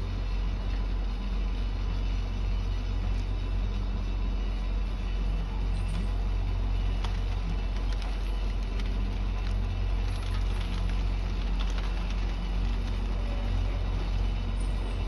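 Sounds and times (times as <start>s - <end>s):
diesel engine droning: 0.0s - 15.0s
wood and branches cracking: 6.9s - 13.2s.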